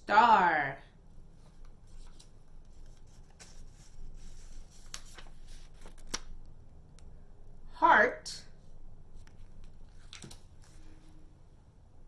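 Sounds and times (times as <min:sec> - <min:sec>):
faint room hum: 0:00.0 - 0:12.0
paper cards rustling: 0:01.4 - 0:06.6, 0:09.2 - 0:11.0.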